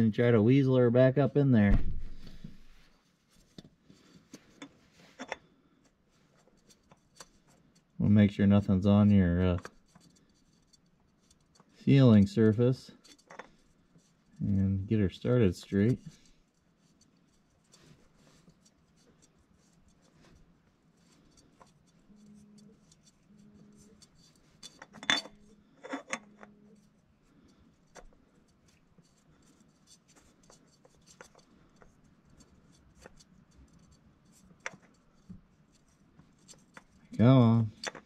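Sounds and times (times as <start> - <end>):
oil filter scraping and clicking: 6.2 - 38.0.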